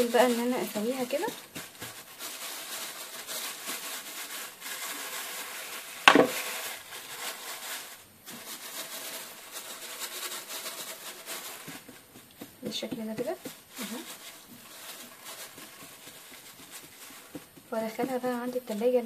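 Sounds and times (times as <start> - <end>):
plastic bags crinkling: 0.0 - 19.0
sharp knock: 6.1 - 6.4.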